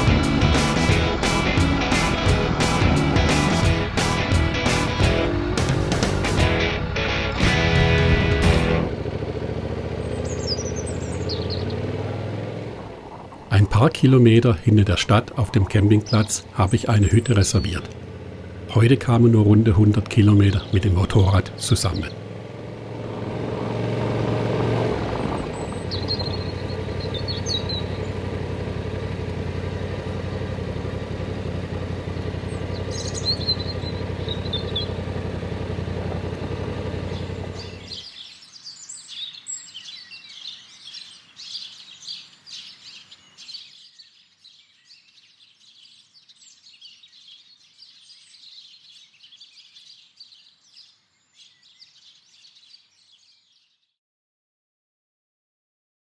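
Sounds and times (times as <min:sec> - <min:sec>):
motorcycle engine running: 0:00.0 - 0:13.7, 0:15.4 - 0:38.0
birds chirping and singing: 0:07.4 - 0:54.0.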